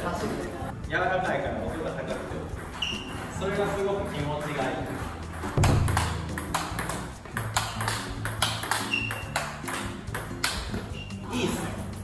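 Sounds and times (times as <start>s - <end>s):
table tennis ball pocks: 5.5s - 10.9s.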